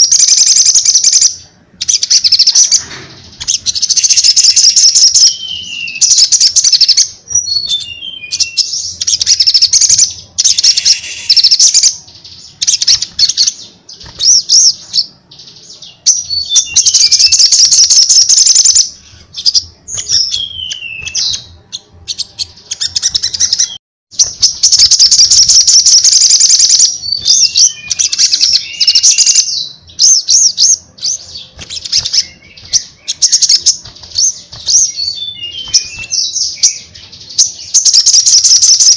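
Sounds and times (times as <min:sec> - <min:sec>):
sunbird song with rapid trills: 0:00.0 - 0:38.9
falling whistled bird notes: 0:01.9 - 0:11.9, 0:22.1 - 0:36.9.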